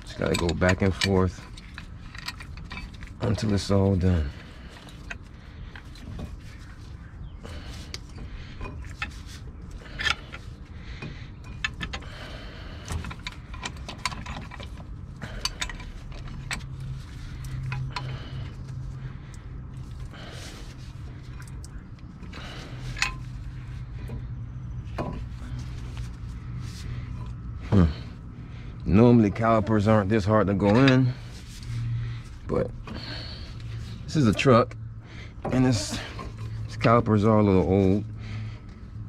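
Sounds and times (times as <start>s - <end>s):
metallic clicks and clanks of clamp: 0.0s - 3.5s, 12.8s - 18.2s, 21.3s - 23.4s
steady low hum: 0.0s - 39.0s.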